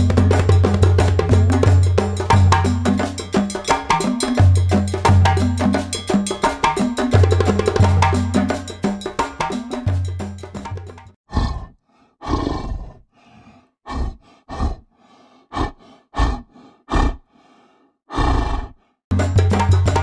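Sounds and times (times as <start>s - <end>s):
percussive background music: 0.0s - 11.2s, 19.1s - 20.0s
tiger roaring: 11.3s - 14.9s, 15.5s - 17.3s, 18.1s - 18.8s.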